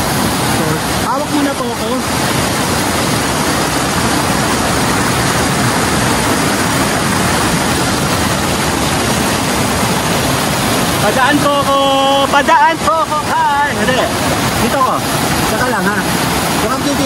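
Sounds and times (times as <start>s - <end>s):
waterfall rushing over rocks: 0.0s - 17.0s.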